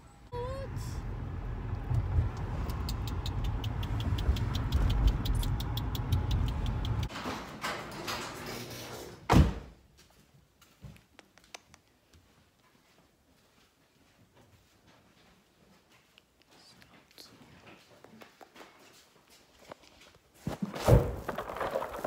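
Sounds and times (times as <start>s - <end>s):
car engine rumble: 0.1s - 7.1s
rapid even ticking: 1.8s - 7.1s.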